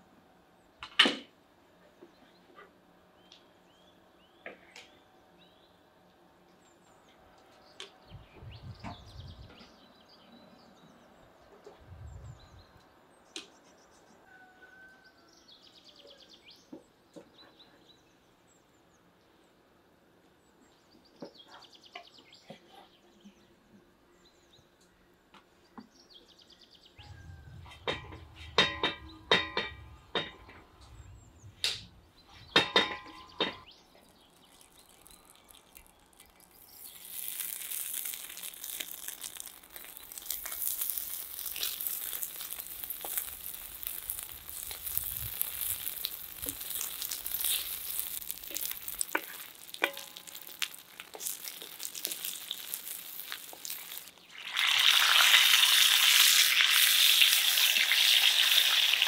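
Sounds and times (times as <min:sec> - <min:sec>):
faint bird chirps: 0:07.7 - 0:18.4, 0:20.9 - 0:29.3
iron pan clanking: 0:27.7 - 0:30.6, 0:32.6 - 0:33.7, 0:48.6 - 0:50.7
fat sizzling in a pan: 0:34.2 - 0:59.0.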